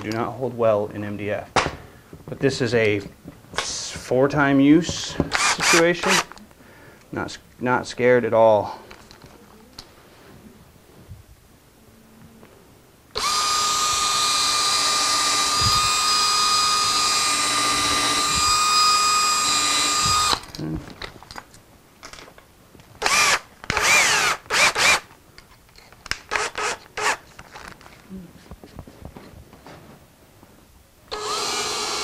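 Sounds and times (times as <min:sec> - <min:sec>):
cordless drill boring into wood: 0:05.3 - 0:06.3, 0:13.2 - 0:20.5, 0:23.0 - 0:25.1, 0:26.3 - 0:27.2, 0:31.1 - 0:32.0.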